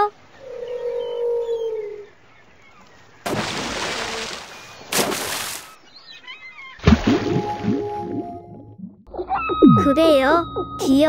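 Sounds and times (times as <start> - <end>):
water splashes: 3.2 - 5.8, 6.8 - 8.7.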